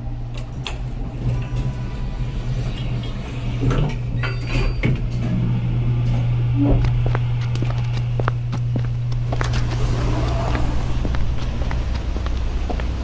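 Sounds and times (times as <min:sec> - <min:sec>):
low hum: 0:00.0 - 0:13.0
lift doors sliding open: 0:00.2 - 0:07.9, 0:09.2 - 0:11.2.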